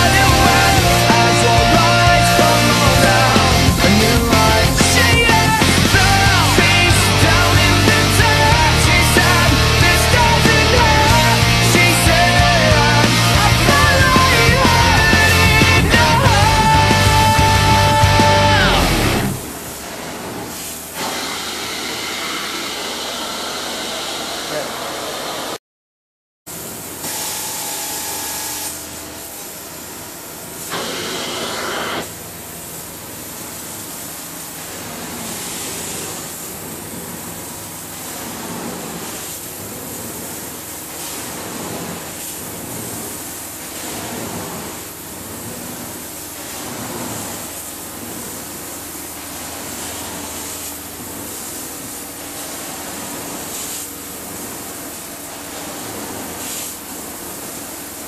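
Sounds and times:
carpet extraction wand hissing: 0:30.3 - 0:32.1.

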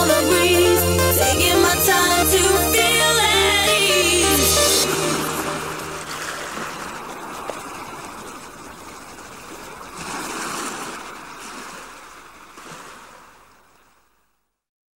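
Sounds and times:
ocean waves breaking: 0:02.4 - 0:13.8.

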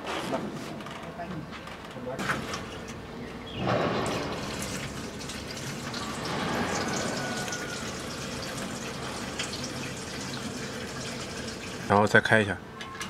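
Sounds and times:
fuel pouring and glugging from bottle: 0:04.0 - 0:11.9.

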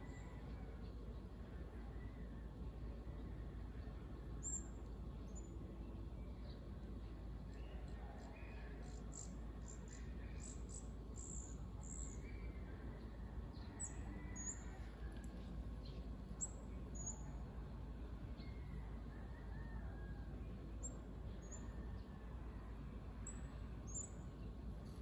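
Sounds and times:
steady low rumble: 0:00.0 - 0:19.2.

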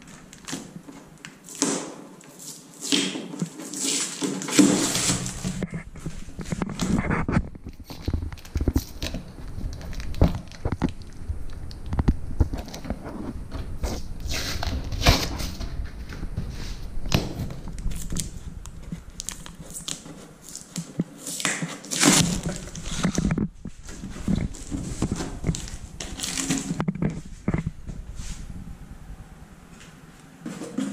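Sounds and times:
packing tape ripping: 0:00.1 - 0:05.6, 0:19.2 - 0:23.4, 0:24.4 - 0:26.8.

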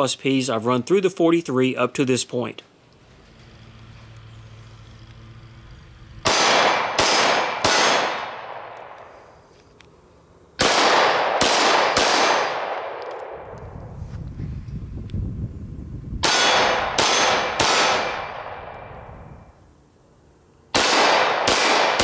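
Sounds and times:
pistol shots: 0:06.2 - 0:09.0, 0:10.6 - 0:13.5, 0:16.2 - 0:18.8, 0:20.7 - 0:22.0.

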